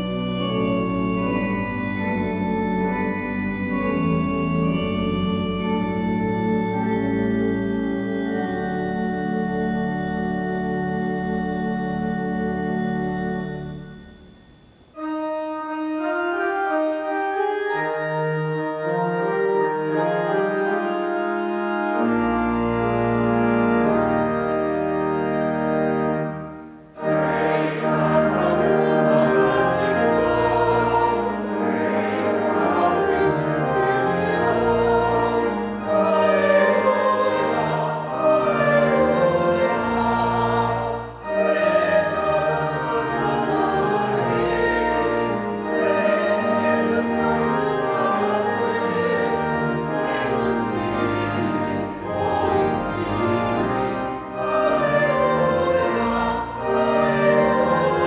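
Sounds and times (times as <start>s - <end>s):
voices singing a hymn: 0.0s - 13.9s, 26.9s - 58.0s
church organ playing held chords: 0.0s - 58.0s
deep organ pedal notes: 0.0s - 58.0s.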